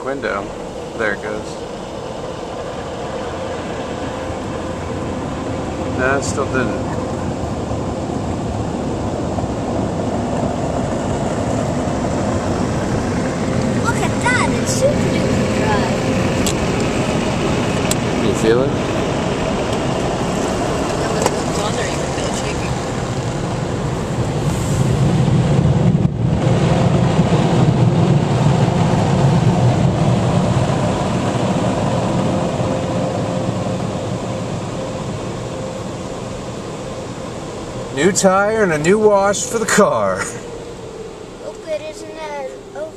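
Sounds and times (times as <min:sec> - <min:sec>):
car wash blower dryers: 0:00.0 - 0:42.9
car cabin rumble: 0:03.8 - 0:24.4.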